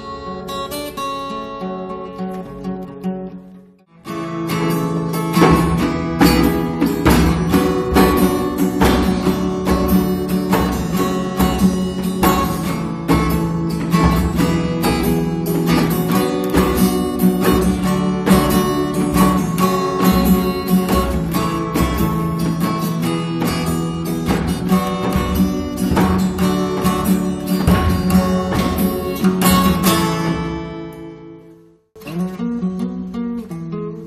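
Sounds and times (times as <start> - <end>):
acoustic guitar chords strummed: 0.0 - 34.0.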